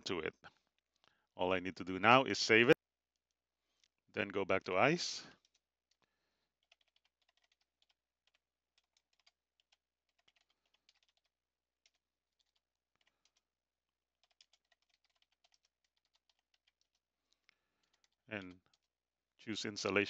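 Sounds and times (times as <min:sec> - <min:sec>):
computer keyboard typing: 0:06.6 - 0:13.5, 0:14.2 - 0:17.0, 0:17.8 - 0:18.9.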